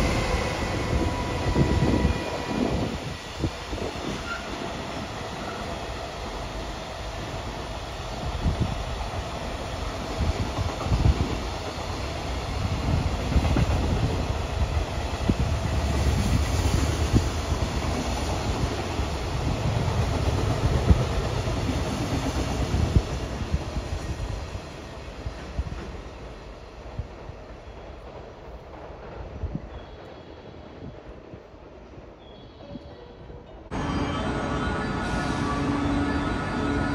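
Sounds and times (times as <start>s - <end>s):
freight train rumbling past: 0.0s - 32.2s, 33.0s - 36.9s.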